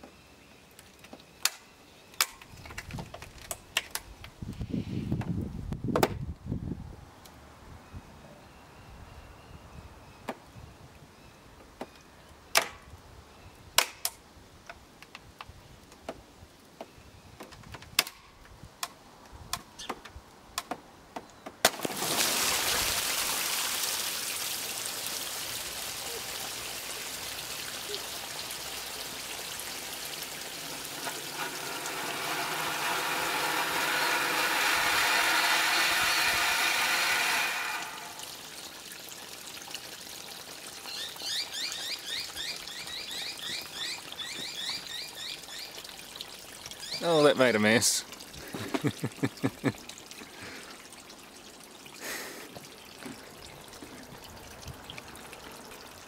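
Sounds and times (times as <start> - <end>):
water rushing out: 21.6 - 56.0
water trickling and dripping: 21.8 - 56.0
tube bursting: 30.4 - 38.4.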